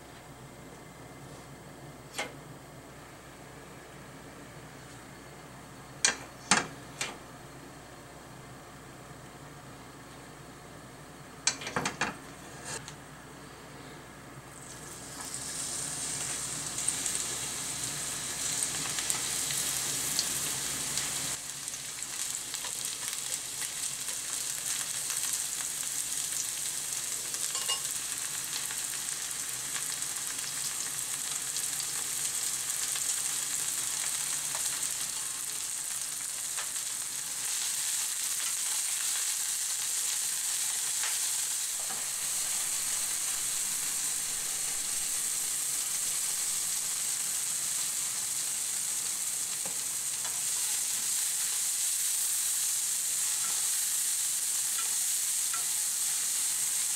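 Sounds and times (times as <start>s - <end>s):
onion sizzling in hot oil: 14.5s - 56.9s.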